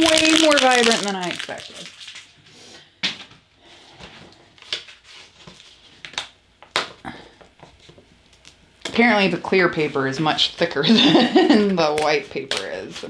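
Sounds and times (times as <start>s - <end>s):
vinyl sheet crackling: 0.0s - 2.4s, 4.6s - 6.9s, 11.7s - 13.0s.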